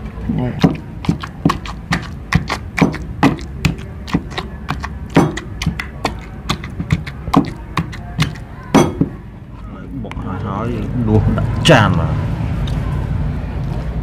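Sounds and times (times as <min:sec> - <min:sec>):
wooden pestle pounding in mortar: 0:00.6 - 0:09.2.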